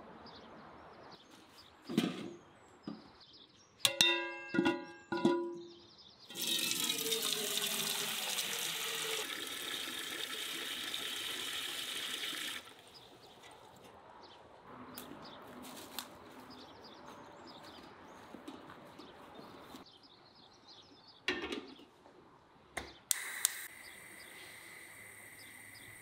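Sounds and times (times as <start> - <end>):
water gushing into a metal pot: 6.3 - 12.8.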